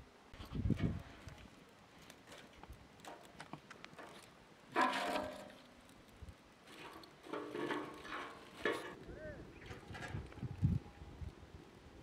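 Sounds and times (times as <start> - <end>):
sticks clicking in metal stove: 2.1 - 5.6, 6.7 - 9.0.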